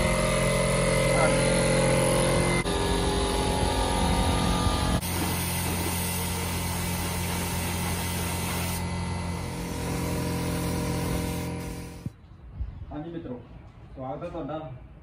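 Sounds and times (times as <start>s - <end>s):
motor hum: 0.0s - 12.1s
low mechanical rumble: 0.0s - 12.2s
paint spray gun hissing: 5.0s - 12.1s.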